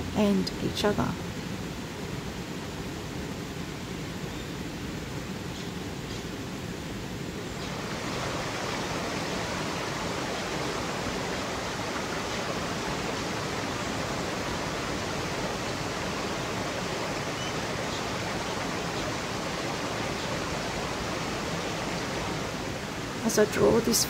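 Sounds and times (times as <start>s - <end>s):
water rushing over rocks: 6.2s - 24.0s.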